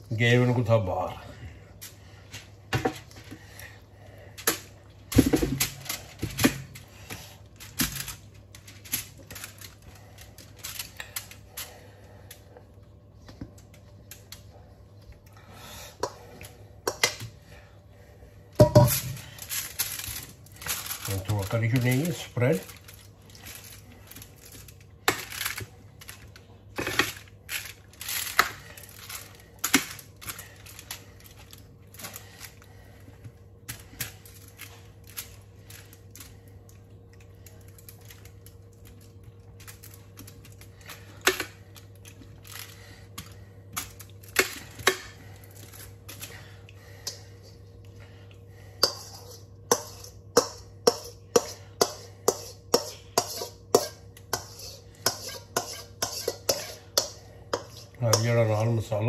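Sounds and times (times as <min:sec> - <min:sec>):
metal spoon scraping baking tray: 0:48.8 - 0:58.4
spoon scraping steel bowl: 0:48.9 - 0:58.3.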